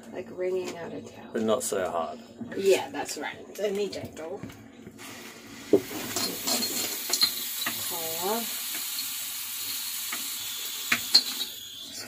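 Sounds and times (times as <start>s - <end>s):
shower water spraying on fur: 5.0s - 12.0s.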